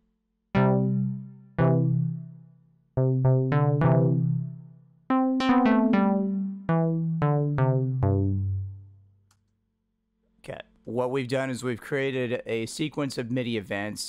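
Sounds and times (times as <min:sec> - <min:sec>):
synthesizer keyboard notes: 0:00.6 - 0:09.0.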